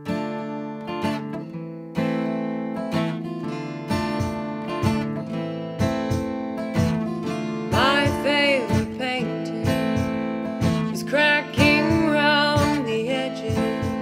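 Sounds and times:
acoustic guitars strummed: 0.0s - 14.0s
woman singing: 7.7s - 14.0s.

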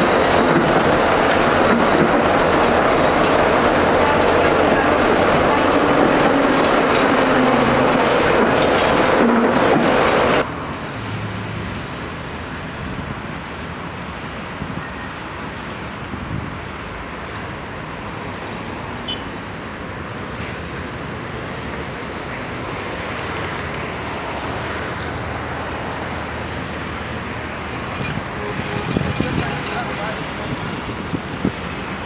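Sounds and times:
street traffic hum: 0.0s - 32.0s
tram running noise with whine: 0.0s - 32.0s.

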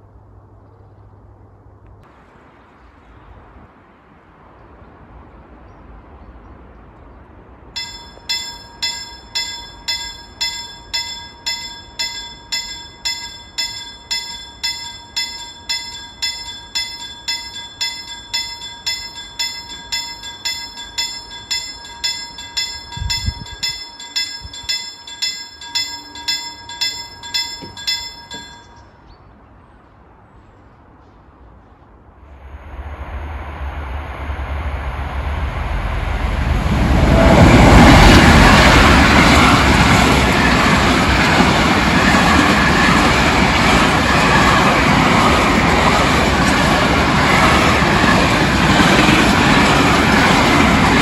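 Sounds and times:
level crossing warning bell: 7.8s - 29.0s, 37.4s - 51.0s.

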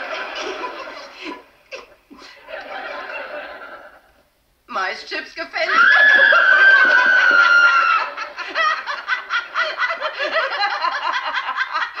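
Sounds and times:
woman screaming: 5.7s - 8.2s
rapid laughter: 5.8s - 12.0s.

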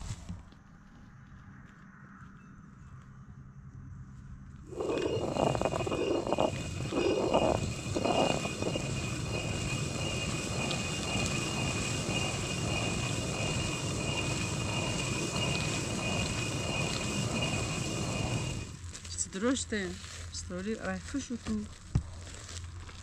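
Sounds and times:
millstone grinding grain: 4.7s - 19.1s.

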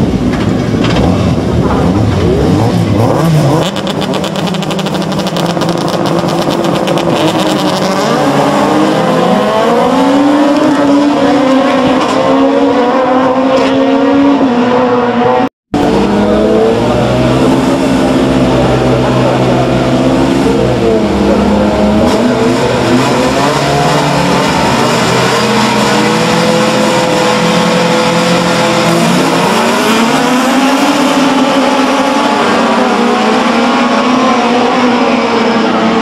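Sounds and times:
cars accelerating away: 0.0s - 36.0s
race car engines revving: 0.0s - 36.0s.

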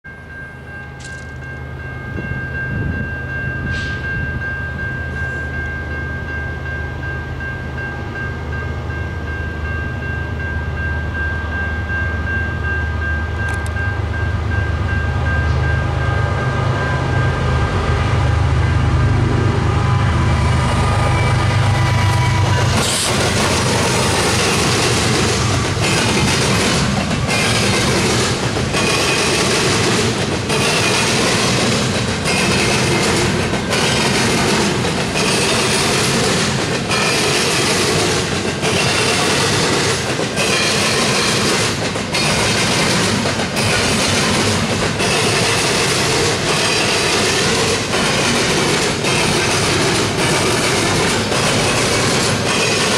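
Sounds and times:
locomotive engine rumble: 13.2s - 52.9s
train wheels clattering over rail joints: 22.4s - 52.9s.

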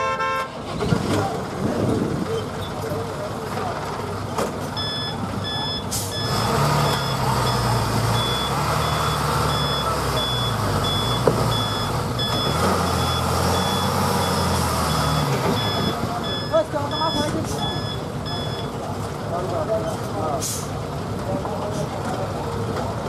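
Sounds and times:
diesel engine working: 0.0s - 23.0s
truck reversing alarm beeping: 4.8s - 18.8s.

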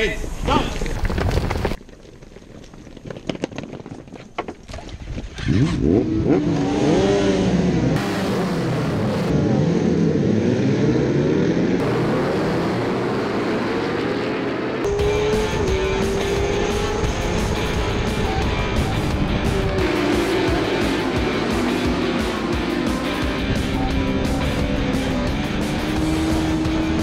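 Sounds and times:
motorcycle engines revving: 5.4s - 27.0s.

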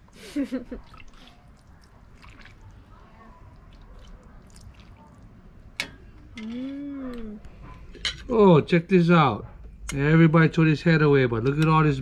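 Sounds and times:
ladle scooping soup: 0.8s - 8.3s
person humming: 6.4s - 7.4s.

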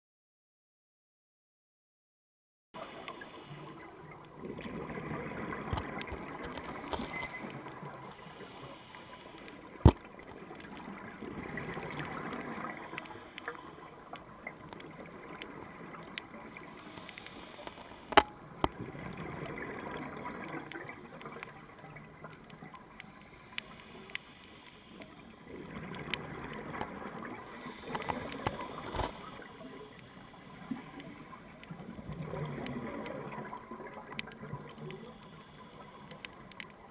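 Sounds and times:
gurgling bubbles underwater: 2.8s - 36.9s
low hiss: 2.8s - 36.9s.

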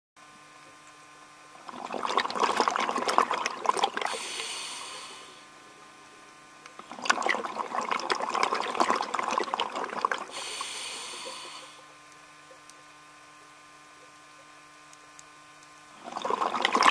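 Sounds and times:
faint steady hum: 0.2s - 16.9s
exhaled bubbles gurgling: 1.6s - 5.4s, 6.8s - 11.9s, 16.0s - 16.9s
regulator inhalation hiss: 4.1s - 5.5s, 10.3s - 11.9s.

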